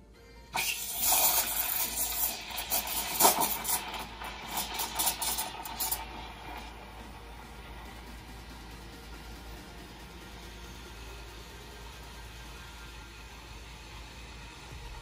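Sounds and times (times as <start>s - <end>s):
steam wand hissing in milk: 0.6s - 8.0s.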